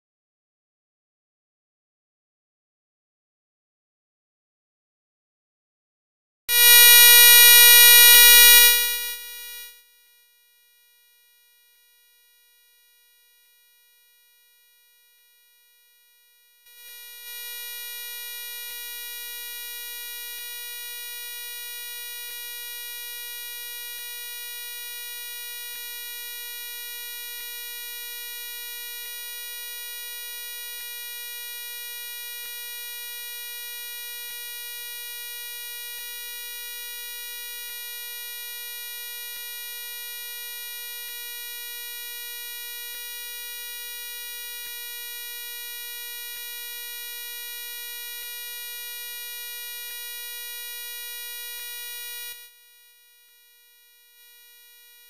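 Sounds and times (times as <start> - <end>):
electronic buzzing tone: 6.5 - 9.9, 16.7 - 52.6, 54.0 - 55.0.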